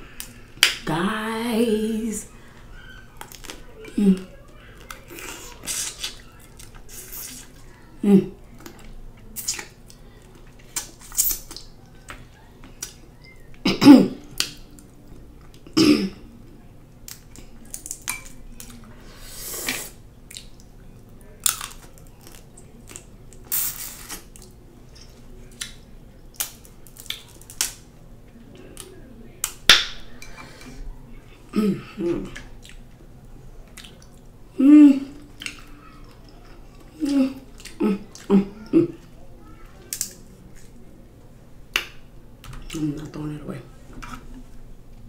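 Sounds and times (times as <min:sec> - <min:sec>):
person chewing: 0:03.2 - 0:07.7, 0:08.6 - 0:13.0, 0:17.1 - 0:20.7, 0:21.4 - 0:27.8, 0:32.1 - 0:33.0, 0:33.6 - 0:34.4, 0:35.1 - 0:39.2.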